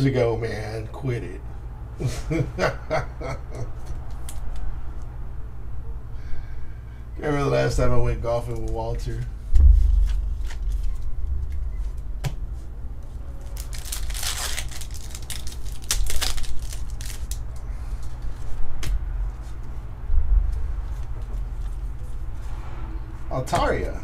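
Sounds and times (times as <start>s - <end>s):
cards being handled: 9.8s - 19.8s
foil wrapper tearing and crinkling: 13.4s - 18.4s.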